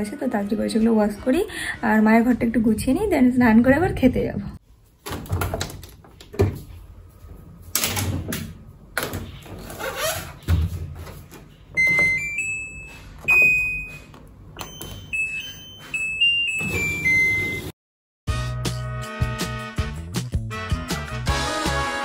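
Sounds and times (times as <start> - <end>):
washing machine beeping tune: 11.7 - 17.8.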